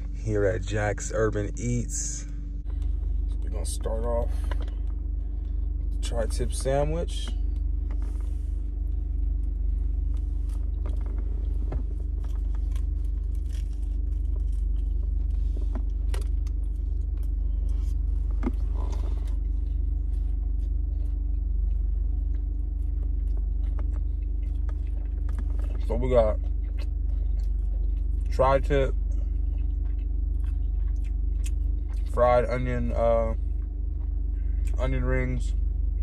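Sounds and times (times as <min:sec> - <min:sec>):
car cabin rumble and hum: 0:00.0 - 0:36.0
sandwich rustling and clicks: 0:12.0 - 0:17.4.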